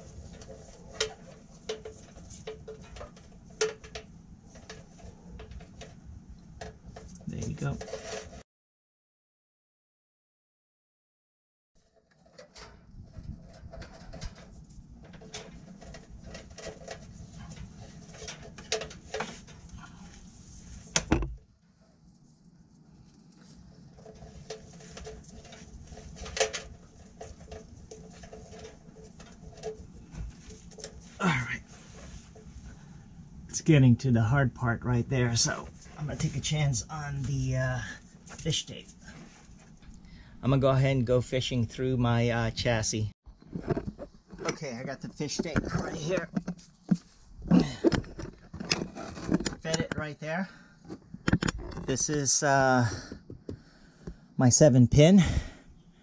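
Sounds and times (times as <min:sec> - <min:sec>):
wires clicking and tapping on metal: 0:00.0 - 0:08.4, 0:11.8 - 0:21.3, 0:23.1 - 0:33.6.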